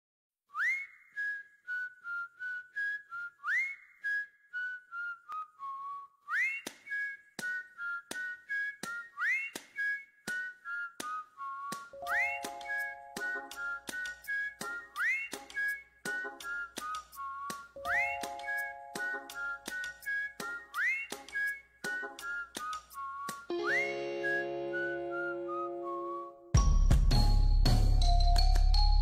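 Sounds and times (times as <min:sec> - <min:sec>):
whistled tune: 0:00.5 - 0:29.0.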